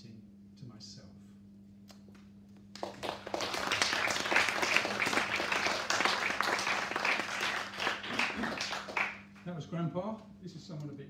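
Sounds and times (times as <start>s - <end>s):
small audience clapping: 2.6s - 9.5s.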